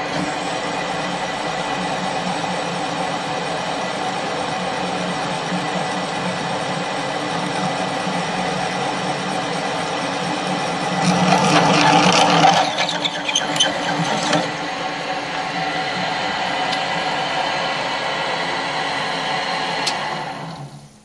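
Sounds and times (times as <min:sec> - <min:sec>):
drill press drilling into steel: 0:05.7 - 0:20.9.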